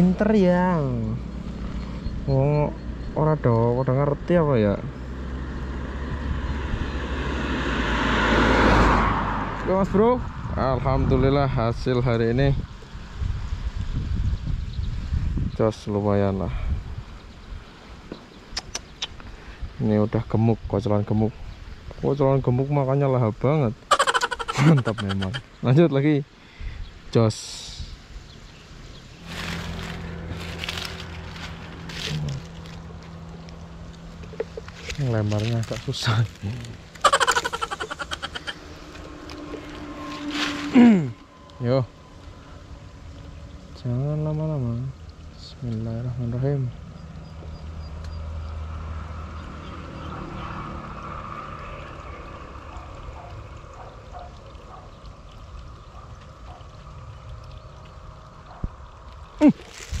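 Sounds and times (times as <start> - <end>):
rustling: 29.2 - 33.5
water trickling in a channel: 40.8 - 46.1, 51.0 - 60.0.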